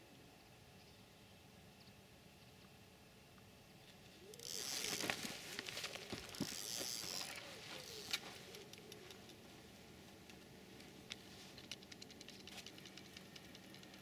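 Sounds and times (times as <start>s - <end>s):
fabric rustling: 4.7s - 8.5s.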